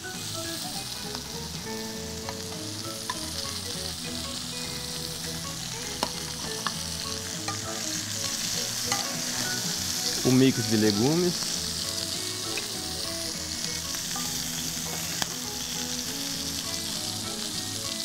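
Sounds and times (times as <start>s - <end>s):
food sizzling in frying pans: 0.0s - 18.0s
metal spoon clinking on pan: 8.9s - 9.2s.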